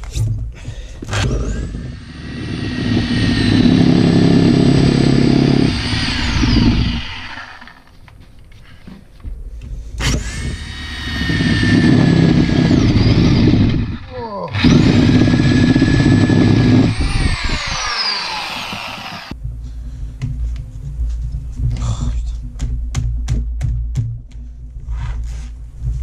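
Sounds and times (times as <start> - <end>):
reciprocating saw cutting: 1.2 - 7.9, 10.0 - 19.4
high motor whine: 1.5 - 8.1, 10.0 - 19.4.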